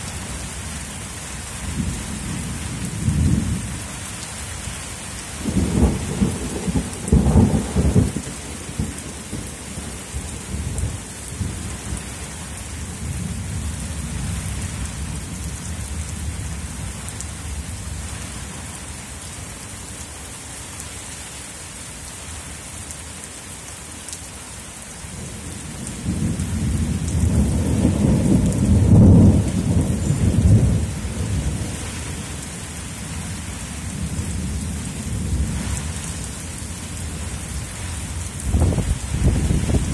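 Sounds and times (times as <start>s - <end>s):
heavy rain hiss: 0.0s - 39.9s
rolling thunder: 5.4s - 9.6s, 25.8s - 32.0s, 38.4s - 39.9s.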